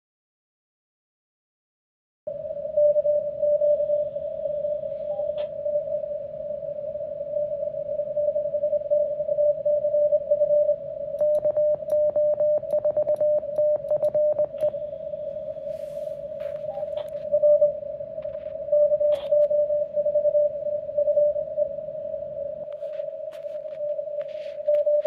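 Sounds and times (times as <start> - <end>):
sharp clicks: 11.2 - 14.8
morse code tone: 15.6 - 17.7.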